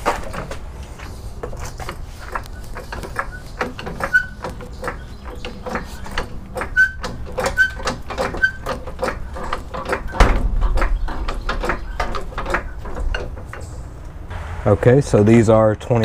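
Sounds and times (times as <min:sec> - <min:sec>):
floor jack pumping clicks: 0:00.0 - 0:13.7
squeak: 0:02.6 - 0:13.0
low rumble: 0:14.2 - 0:16.0.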